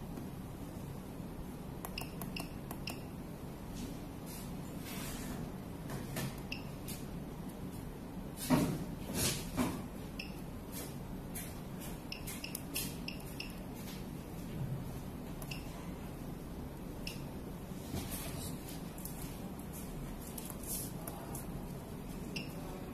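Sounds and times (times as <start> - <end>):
steady low hum: 0.0 - 22.9
short electronic beeps with clicks: 1.9 - 3.1, 10.2 - 10.4, 12.1 - 13.6, 15.4 - 15.7, 17.0 - 17.3.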